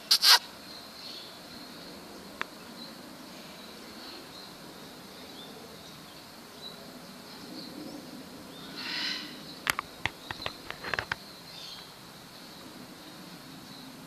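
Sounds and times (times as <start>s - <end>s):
buzzy monkey call: 0.0s - 0.5s
sharp high chirps: 0.1s - 0.4s.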